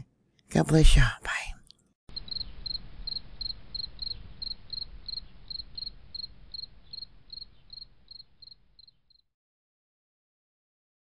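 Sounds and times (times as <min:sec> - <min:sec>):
insect-like chirping: 0:02.1 - 0:09.3.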